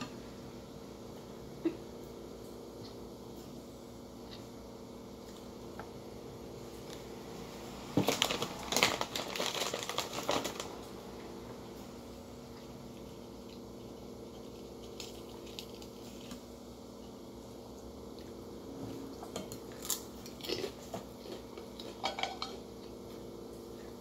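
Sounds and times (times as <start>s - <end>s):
steady low hum: 0.0s - 24.0s
cracker crunching: 8.0s - 10.9s, 12.5s - 17.2s, 19.4s - 23.0s.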